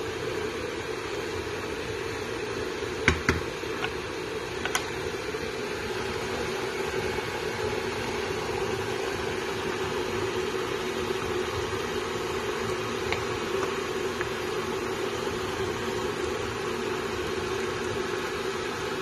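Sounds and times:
steady hum and hiss: 0.0 - 19.0
wooden spoon knocking on pot: 3.0 - 3.5.

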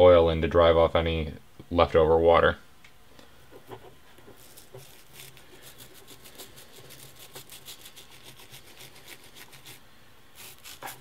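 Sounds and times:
toothbrush scrubbing metal gear: 4.4 - 9.8, 10.4 - 11.0.

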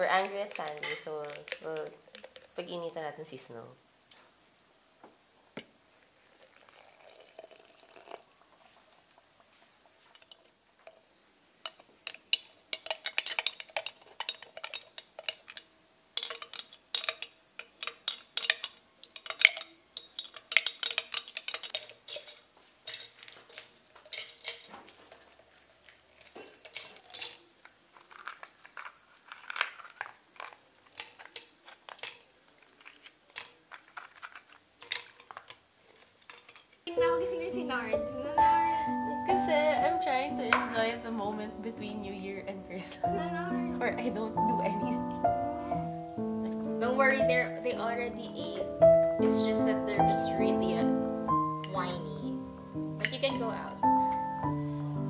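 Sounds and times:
spoon clinking against glass jar: 53.0 - 55.0.

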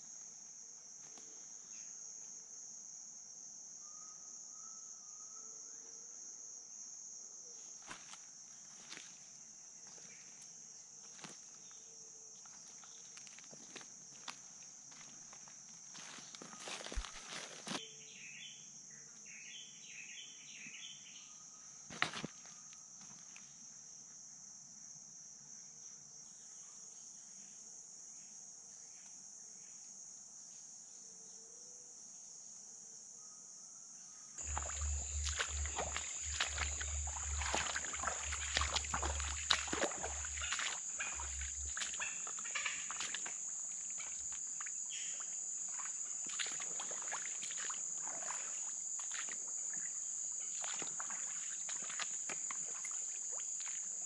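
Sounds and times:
insects buzzing: 6.4 - 26.4, 34.4 - 54.0
splashes in shallow water: 16.0 - 17.8, 34.4 - 44.8, 45.6 - 54.0.

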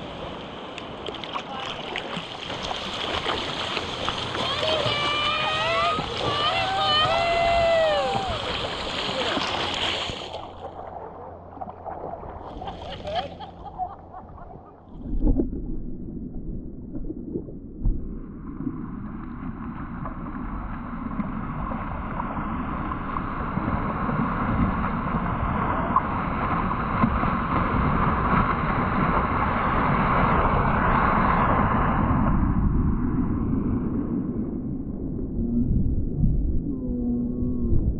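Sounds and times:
rush of water: 0.0 - 13.6, 17.8 - 33.4
seawater sloshing and splashing: 0.8 - 15.5
wind noise on camera: 16.4 - 37.9.

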